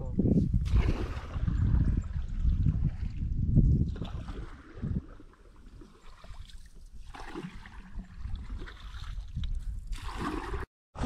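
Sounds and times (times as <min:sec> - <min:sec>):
wind rumbling on microphone: 0:00.0 - 0:11.0
water lapping around boat: 0:00.6 - 0:10.7.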